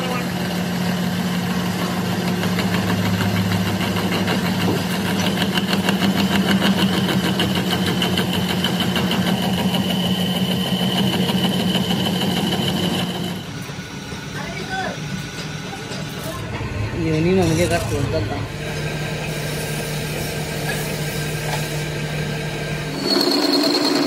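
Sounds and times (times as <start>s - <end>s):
lathe motor hum with ticking: 0.0s - 16.1s, 17.7s - 24.0s
high cutting whine: 16.8s - 24.0s.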